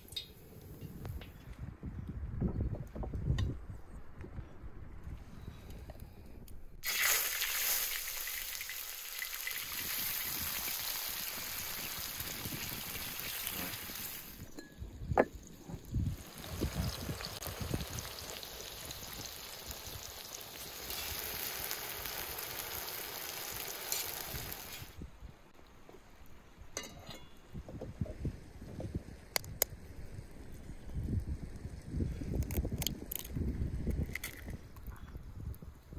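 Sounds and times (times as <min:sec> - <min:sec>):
tomatoes sizzling in a pan: 0:06.8 - 0:14.5, 0:16.0 - 0:24.9.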